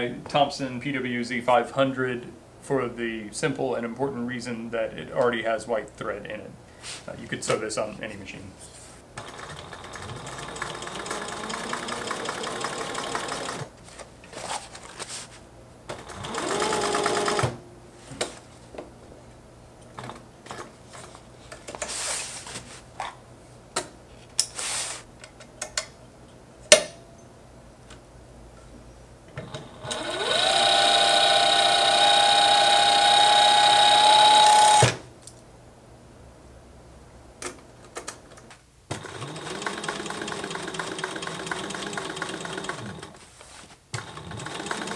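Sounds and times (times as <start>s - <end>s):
sewing machine stitching: 9.2s - 13.7s, 15.9s - 17.6s, 29.4s - 35.0s, 38.9s - 43.2s, 44.0s - 44.9s.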